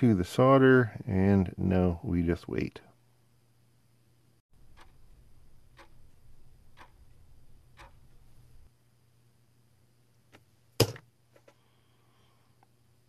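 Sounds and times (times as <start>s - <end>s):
clock-like ticking: 4.6s - 8.4s
low hum: 4.6s - 8.7s.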